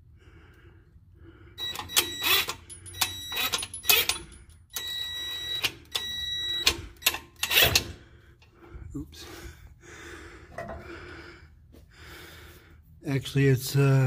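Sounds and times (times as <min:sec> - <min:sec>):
impact wrench whirring and clattering: 0:01.6 - 0:08.0.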